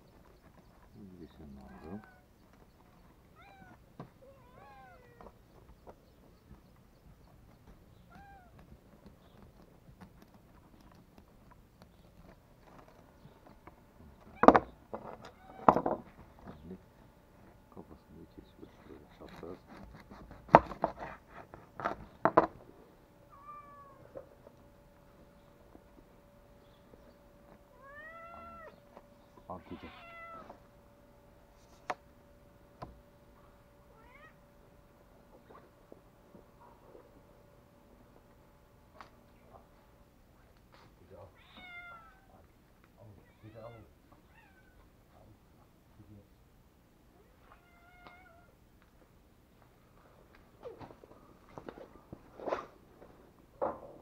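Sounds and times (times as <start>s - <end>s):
cat meow: 1.7s - 2.3s, 3.4s - 5.3s, 8.1s - 8.6s, 15.2s - 15.8s, 23.3s - 24.2s, 27.7s - 28.8s, 29.6s - 30.6s, 33.9s - 34.4s, 41.3s - 42.4s, 43.2s - 44.9s, 47.2s - 48.6s
small knocks: 7.6s - 16.7s, 20.3s - 22.6s.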